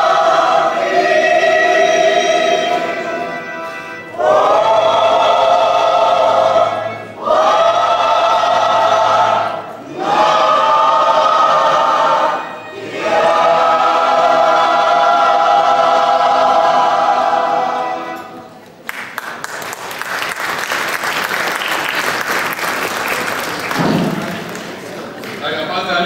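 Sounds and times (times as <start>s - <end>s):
choir singing sustained chords: 0.0s - 18.6s
audience applause: 18.8s - 25.7s.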